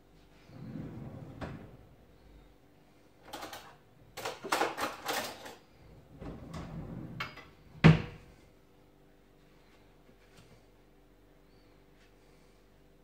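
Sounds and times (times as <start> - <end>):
kitchen clicks and scrapes: 3.3 - 5.7.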